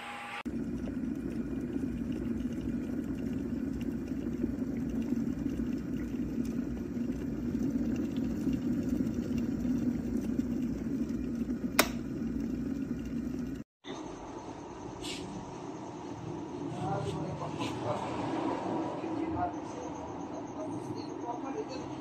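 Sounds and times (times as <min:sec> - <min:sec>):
water boiling in kettle: 0:00.4 - 0:13.7
kettle switch click: 0:11.8 - 0:12.0.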